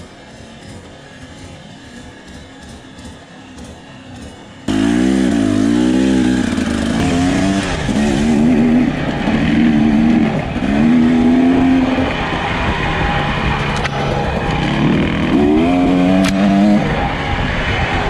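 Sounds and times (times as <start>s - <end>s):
dirt bike engine revving: 0.0s - 18.0s.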